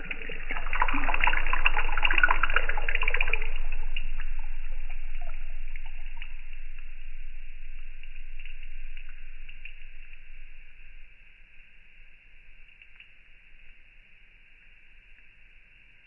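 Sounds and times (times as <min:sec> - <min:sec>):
faint tuning fork tone: 0:00.0 - 0:12.7
crackling water splash: 0:00.0 - 0:16.0.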